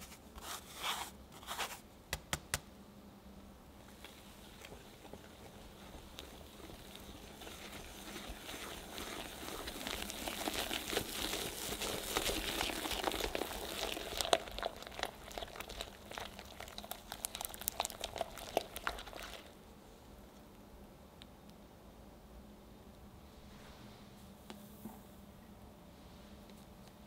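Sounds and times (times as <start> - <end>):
whisk rasping in batter: 4.0 - 19.5
wet batter clicks: 4.0 - 19.6.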